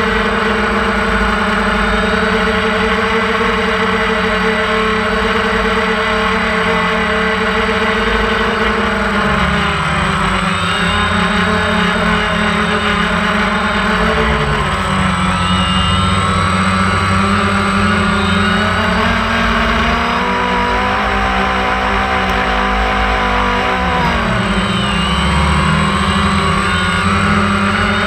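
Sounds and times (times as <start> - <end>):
drone motors whining: 0.0 - 28.0.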